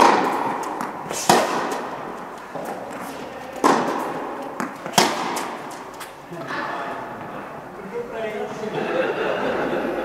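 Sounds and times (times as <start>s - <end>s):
tennis ball hit by racket: 0.0s - 6.2s.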